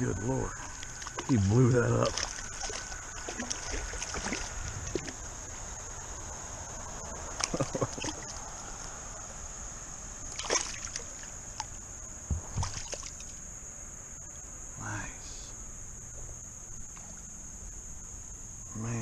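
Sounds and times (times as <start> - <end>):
water sloshing: 0.0 - 5.4, 7.2 - 8.4, 10.3 - 13.4
fish thrashing and splashing: 0.6 - 5.2, 10.3 - 11.3.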